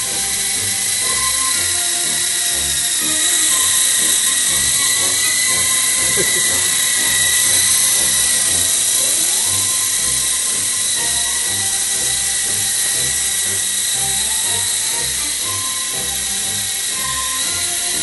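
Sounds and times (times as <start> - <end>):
low regular pulsing: 0.0 - 18.0
toy helicopter motor whine: 0.0 - 18.0.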